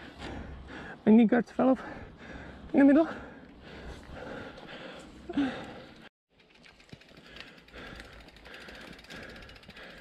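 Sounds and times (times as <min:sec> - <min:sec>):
bike freewheel ticking: 0:05.5 - 0:10.0.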